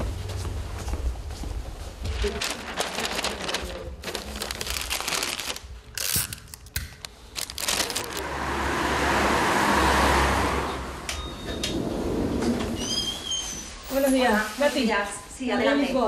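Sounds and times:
wrapping material crinkling: 2.1 - 8.3
car passing on wet street: 7.7 - 11.1.

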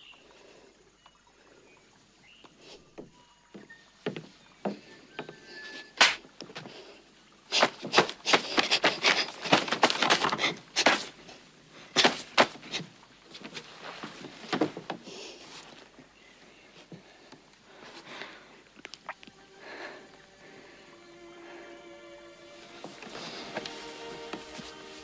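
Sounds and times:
clothing rustling: 7.5 - 16.0, 22.6 - 25.0
person breathing: 15.0 - 18.7, 19.4 - 22.1, 23.1 - 23.8.

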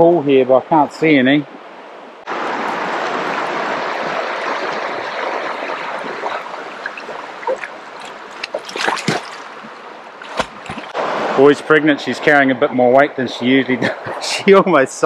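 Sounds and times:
creek water rushing: 0.0 - 15.0
dog splashing into water: 3.9 - 9.6, 10.2 - 11.0.

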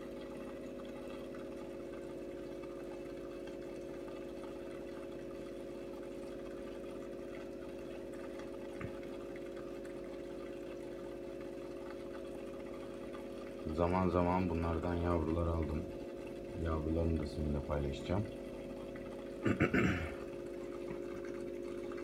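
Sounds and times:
pump hum: 0.0 - 22.0
water trickling and bubbling: 0.0 - 22.0
faint tap: 8.8 - 9.0.

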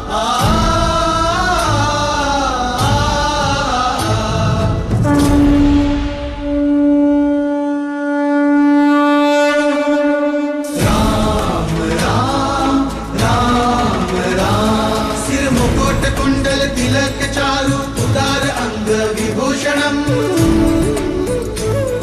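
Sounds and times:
music with singing: 0.0 - 6.8, 9.6 - 22.0
conch shell blown: 5.0 - 11.8.

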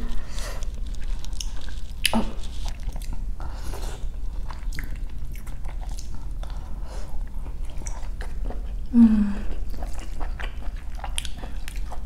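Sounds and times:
wet chewing with clicks: 0.0 - 3.2, 4.4 - 6.6, 7.2 - 8.9, 9.5 - 12.0.

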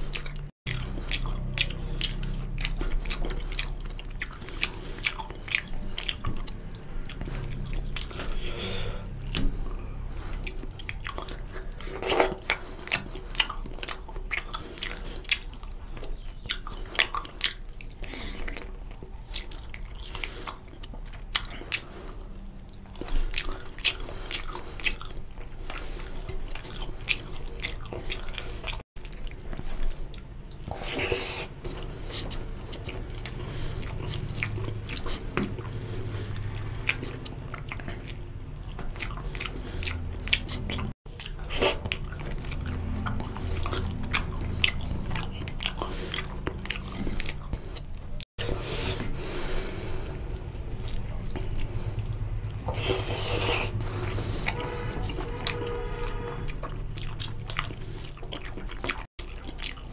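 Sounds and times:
close chewing with wet mouth clicks: 0.0 - 59.9.

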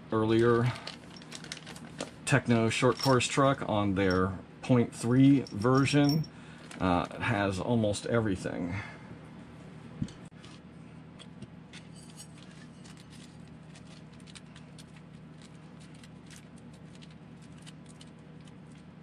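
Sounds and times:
steady low hum: 0.0 - 19.0
small parts clicking and rattling: 0.8 - 2.1, 2.9 - 3.4, 11.8 - 18.9.

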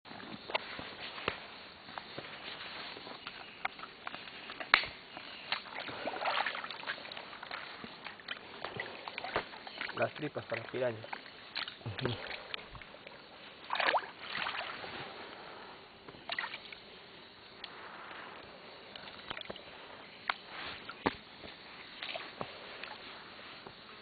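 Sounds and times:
water splashing around a boat: 2.3 - 16.9, 20.4 - 23.9.

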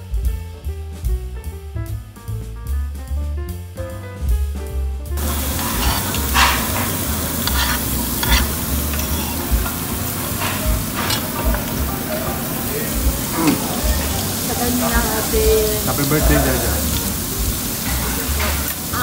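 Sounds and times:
jazz music: 0.0 - 19.0
meat sizzling on grill: 5.2 - 19.0
metal tongs clicking: 5.3 - 11.9.

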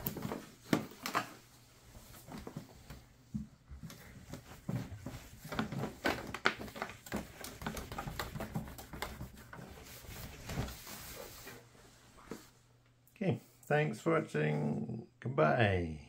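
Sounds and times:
cloth rubbing plastic case: 0.0 - 12.6.

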